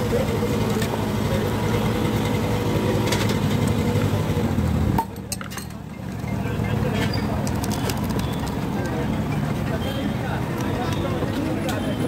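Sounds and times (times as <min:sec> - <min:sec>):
idling engine rumble: 0:00.0 - 0:05.0
street traffic: 0:00.0 - 0:12.0.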